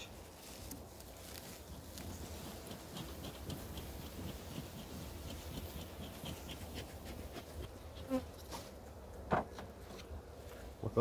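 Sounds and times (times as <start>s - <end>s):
honeybees buzzing: 1.6s - 8.9s.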